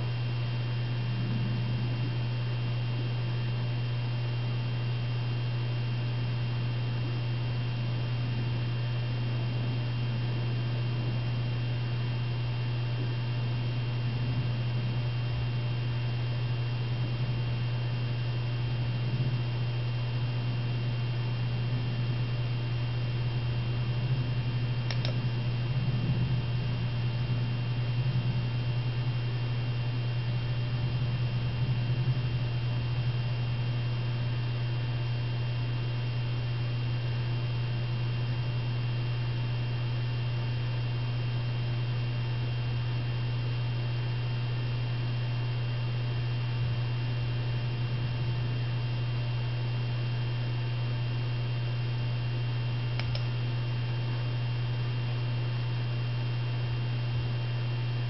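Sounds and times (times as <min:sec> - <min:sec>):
low electrical hum: 0:00.0 - 0:58.0
short click: 0:24.9 - 0:25.2, 0:53.0 - 0:53.3.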